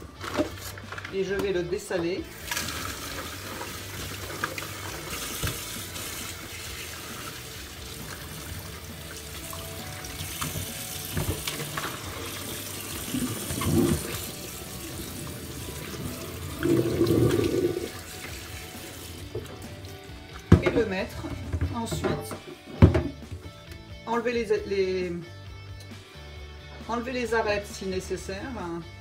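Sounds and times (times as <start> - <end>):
tap water splashing on fish: 4.1 - 6.0, 9.2 - 12.0.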